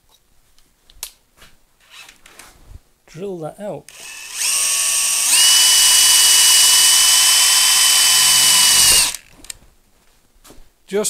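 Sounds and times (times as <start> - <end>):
cordless drill whining: 3.9 - 9.6.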